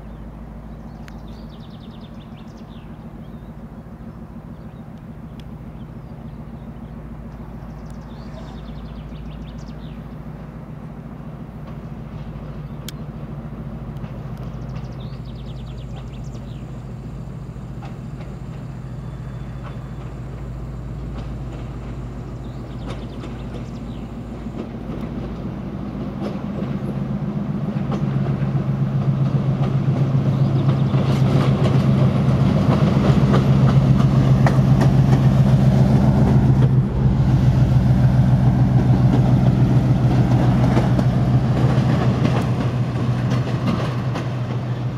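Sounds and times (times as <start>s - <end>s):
diesel locomotive engine drone: 0.0s - 44.9s.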